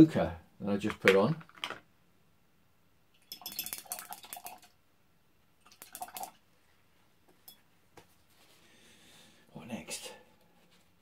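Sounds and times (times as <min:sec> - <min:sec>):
paintbrush clinking in water jar: 0:03.1 - 0:04.8, 0:05.7 - 0:06.4, 0:07.3 - 0:07.6.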